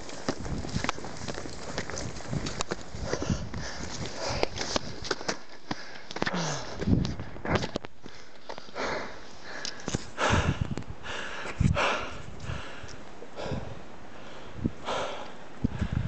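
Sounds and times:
footsteps on rock: 0:00.0 - 0:10.2
person breathing hard: 0:03.0 - 0:16.0.

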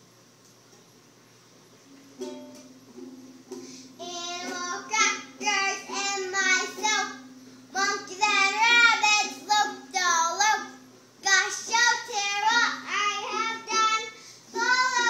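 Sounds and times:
child singing: 0:04.0 - 0:15.0.

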